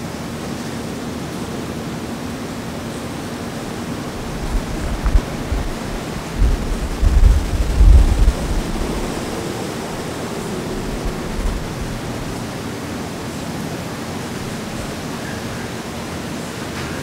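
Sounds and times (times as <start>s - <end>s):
rushing outdoor noise: 0.0s - 17.0s
heavy low rumbles: 3.6s - 12.6s.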